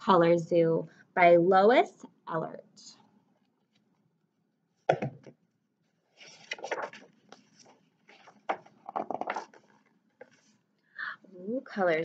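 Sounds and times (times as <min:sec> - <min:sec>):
book pages rustling: 0:06.0 - 0:10.6.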